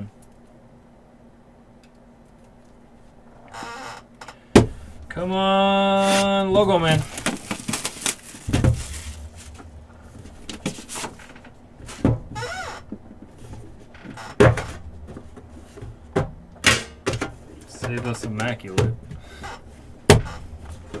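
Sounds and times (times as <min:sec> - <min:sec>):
card packs being handled: 0:05.8 - 0:11.3.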